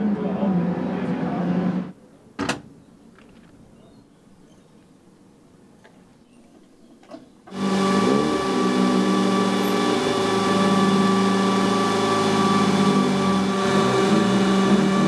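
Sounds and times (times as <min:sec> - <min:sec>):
race car engine running: 0:07.5 - 0:15.0.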